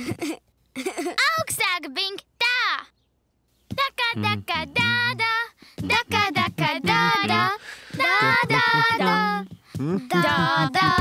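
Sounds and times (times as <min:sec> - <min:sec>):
young children singing: 0:04.1 - 0:11.0.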